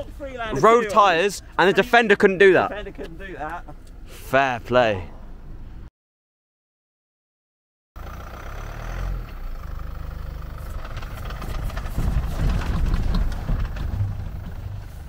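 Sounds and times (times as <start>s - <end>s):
diesel engine at low revs: 8.0s - 15.0s
knocks and rattles: 10.4s - 15.0s.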